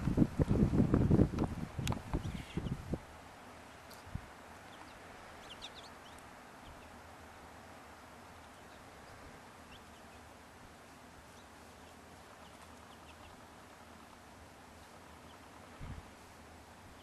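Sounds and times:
background hiss: 0:00.0 - 0:17.0
birds chirping: 0:01.9 - 0:07.1, 0:08.2 - 0:10.4, 0:11.2 - 0:16.0.

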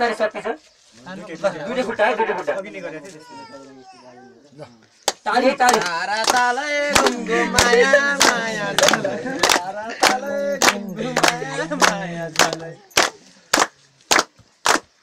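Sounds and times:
rhythmic hand-clapping: 0:05.0 - 0:15.0
person singing: 0:06.3 - 0:13.3.

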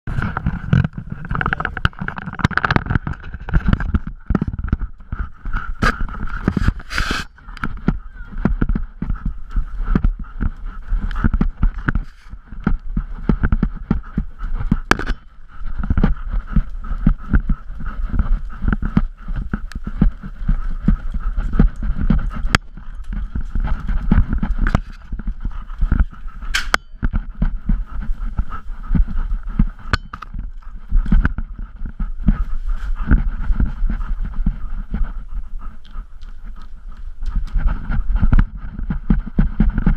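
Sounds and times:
low rumble: 0:00.1 - 0:39.9
camera handling knocks and rubbing: 0:00.2 - 0:05.2, 0:14.7 - 0:15.2.

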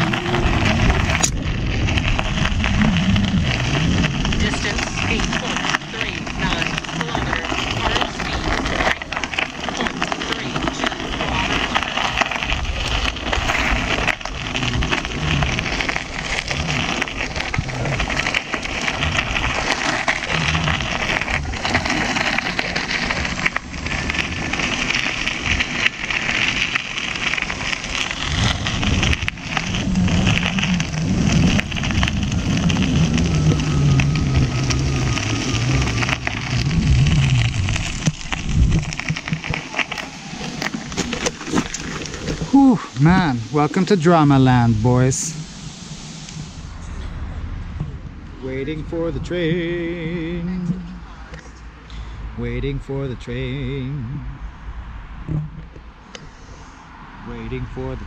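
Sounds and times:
tyre rolling over gravel: 0:00.0 - 0:46.9
wind rushing over microphone: 0:00.0 - 0:51.3.

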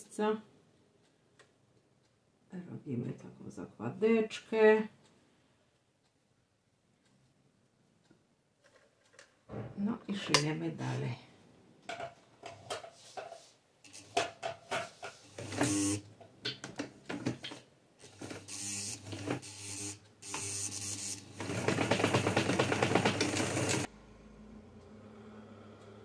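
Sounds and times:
electric sewing machine stitching: 0:15.3 - 0:16.0, 0:18.0 - 0:23.9.

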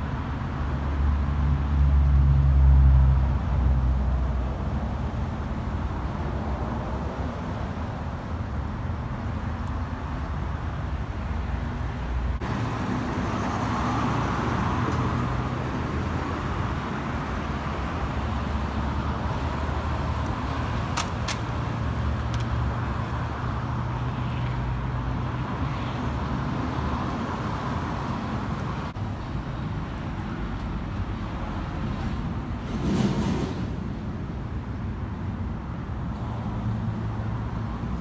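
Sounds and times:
road traffic rumble: 0:00.0 - 0:38.0
sharp clicks: 0:20.2 - 0:21.5.

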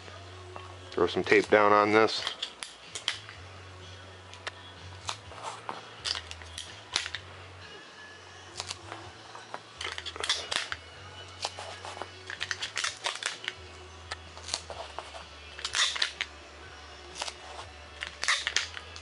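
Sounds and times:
tape being torn: 0:01.3 - 0:03.4, 0:04.3 - 0:07.3, 0:08.5 - 0:09.1, 0:09.8 - 0:16.4, 0:17.1 - 0:19.0.

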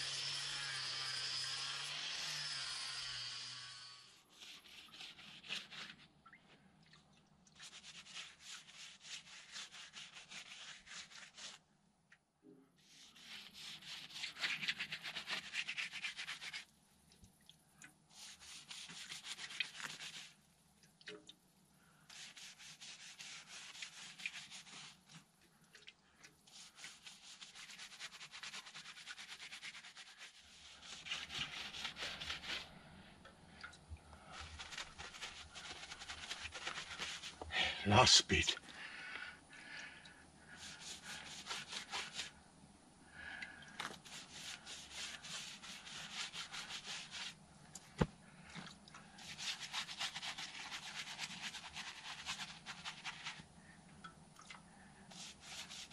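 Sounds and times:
rubbing on a log wall: 0:22.1 - 0:25.3, 0:26.5 - 0:32.7, 0:34.3 - 0:37.6, 0:40.6 - 0:42.3, 0:43.8 - 0:47.4, 0:49.2 - 0:53.4, 0:55.1 - 0:55.9.

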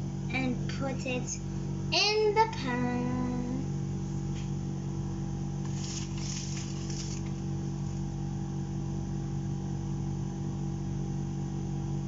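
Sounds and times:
kitchen appliance humming: 0:00.0 - 0:09.3
batter sliding from bowl: 0:05.6 - 0:08.0.

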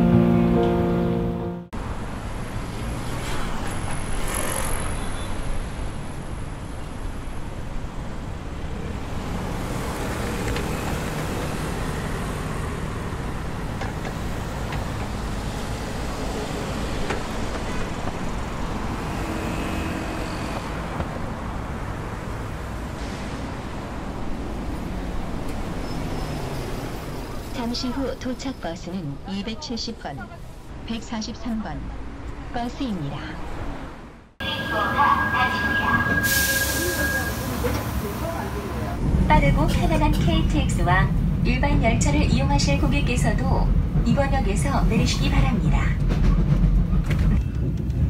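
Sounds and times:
bus driving past: 0:00.0 - 0:28.8
cars driving past: 0:01.8 - 0:28.1.

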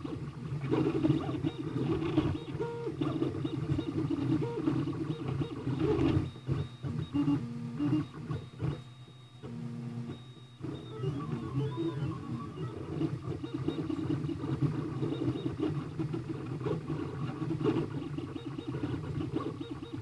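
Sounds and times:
steady low hum: 0:00.0 - 0:17.6
stepper motors whining: 0:00.4 - 0:16.0.

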